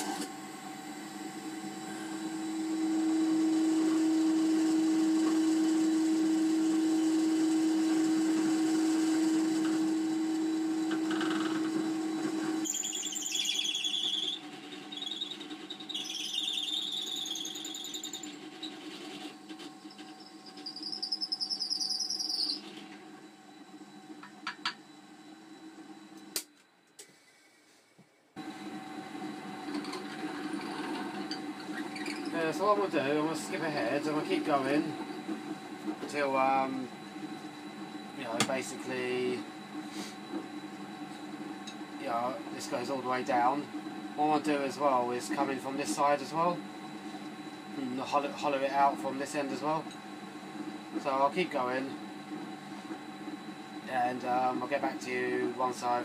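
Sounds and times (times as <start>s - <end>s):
drill press humming: 0.0s - 27.7s, 28.4s - 56.0s
drill bit squealing in antler: 12.6s - 18.9s, 20.2s - 22.7s, 31.3s - 32.4s.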